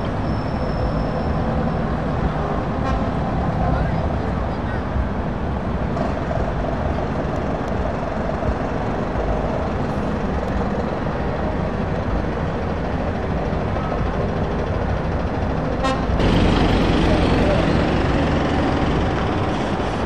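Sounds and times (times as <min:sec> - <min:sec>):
diesel truck engine rumbling: 0:00.0 - 0:20.0
idling truck engines: 0:06.2 - 0:20.0.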